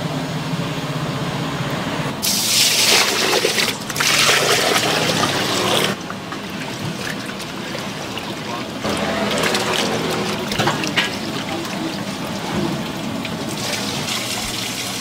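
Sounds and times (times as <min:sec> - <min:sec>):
water pouring into a basin: 0:02.2 - 0:15.0.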